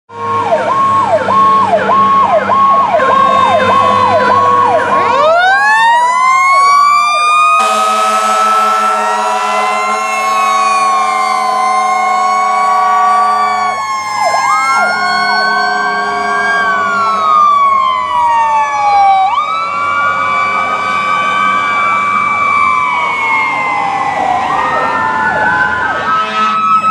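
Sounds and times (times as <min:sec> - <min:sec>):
siren yelping: 0:00.1 - 0:26.9
sirens wailing: 0:00.1 - 0:26.9
air horn blast: 0:07.6 - 0:13.8, 0:14.8 - 0:17.4, 0:26.1 - 0:26.8.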